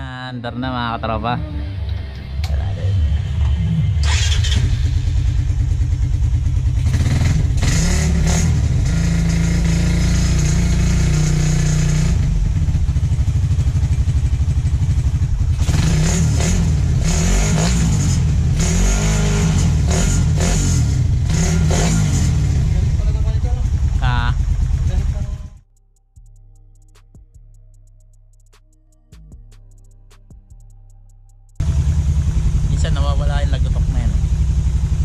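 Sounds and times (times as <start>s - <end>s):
motorcycle engine revving: 2.2s - 25.6s, 31.6s - 35.0s.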